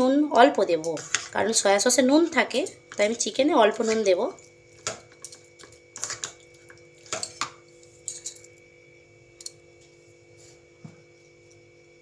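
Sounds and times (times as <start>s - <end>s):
faint steady hum: 0.0s - 12.0s
spoon clinking against bowls: 2.5s - 8.6s.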